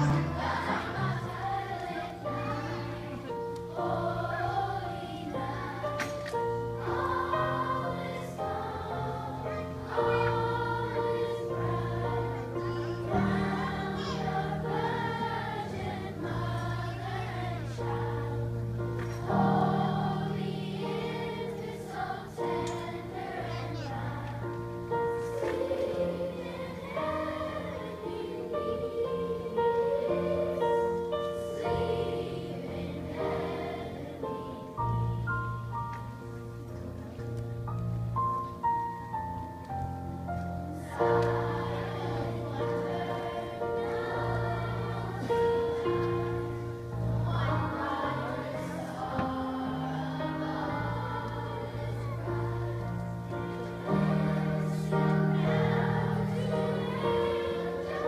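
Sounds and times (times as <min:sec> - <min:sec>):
instrumental accompaniment: 0:00.0 - 0:23.5
children's choir singing: 0:00.0 - 0:58.0.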